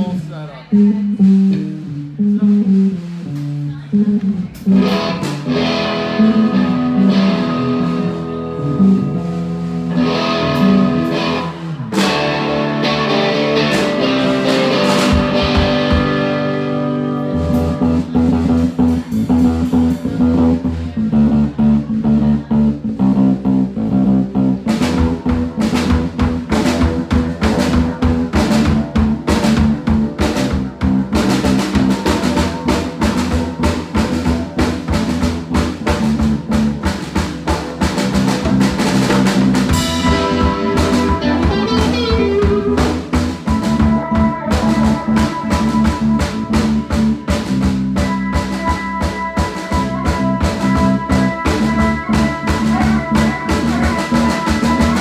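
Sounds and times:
bass guitar line: 0:00.0 - 0:55.0
drum kit playing: 0:00.0 - 0:55.0
electric guitars playing: 0:00.6 - 0:55.0.

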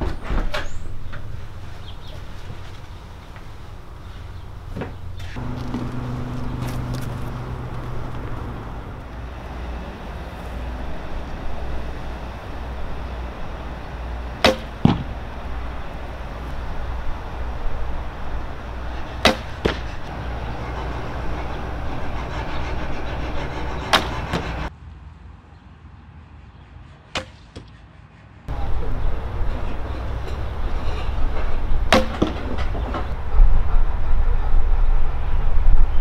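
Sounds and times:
low rumble: 0:05.4 - 0:24.7
arrow knock: 0:14.4 - 0:15.1, 0:19.2 - 0:19.8, 0:31.9 - 0:32.4.

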